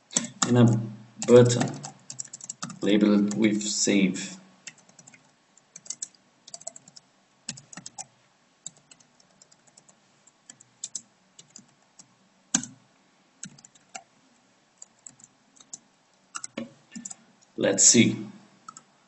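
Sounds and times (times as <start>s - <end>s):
keyboard typing: 0.1s - 3.7s, 4.6s - 12.8s, 13.4s - 14.1s, 14.8s - 17.2s, 18.7s - 18.9s.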